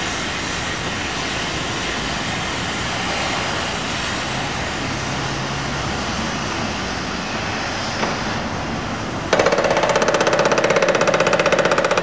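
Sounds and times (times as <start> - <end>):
outdoor machinery noise: 0.0 - 12.0
traffic: 0.0 - 12.0
fast mechanical pounding: 9.3 - 12.0.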